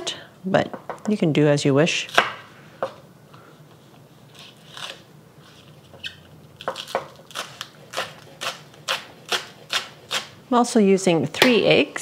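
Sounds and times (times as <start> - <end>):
knife cutting on a cutting board: 6.0 - 10.4.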